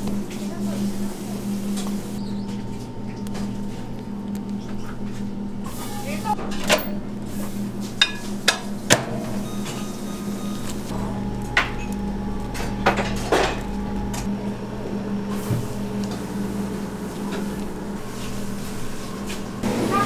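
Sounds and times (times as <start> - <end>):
low equipment hum: 0.0 - 20.0
utensils knocking and clattering: 8.0 - 14.3.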